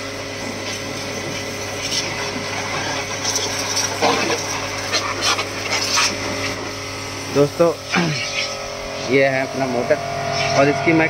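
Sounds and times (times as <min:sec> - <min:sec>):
pressure washer pump humming: 0:00.0 - 0:11.0
water jet spattering: 0:00.6 - 0:08.8.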